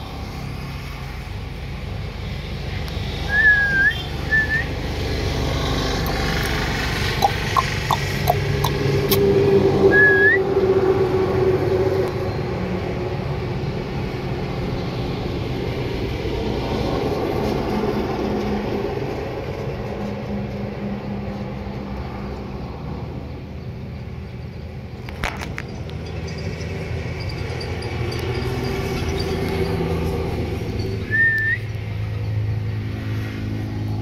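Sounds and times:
short rising whistle: 3.2 - 4.8, 9.1 - 10.6, 31.0 - 31.7.

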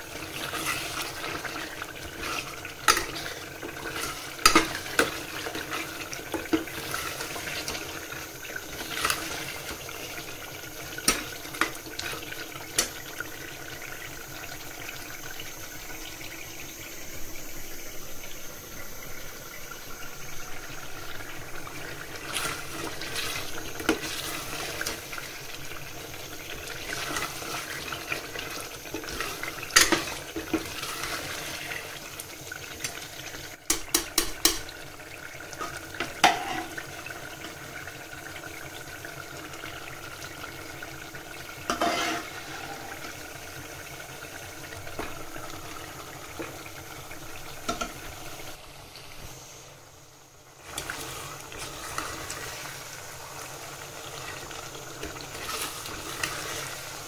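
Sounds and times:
tap water running into sink: 0.0 - 49.3.

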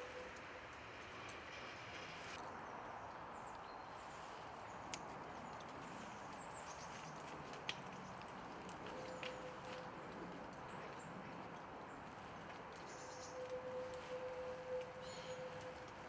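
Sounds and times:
tram rolling: 0.0 - 2.4
bird chirps: 12.9 - 15.8.

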